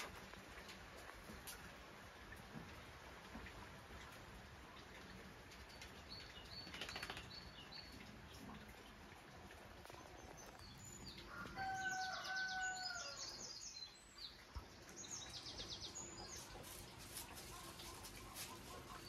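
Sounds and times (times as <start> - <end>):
songbirds singing: 4.8 - 19.0.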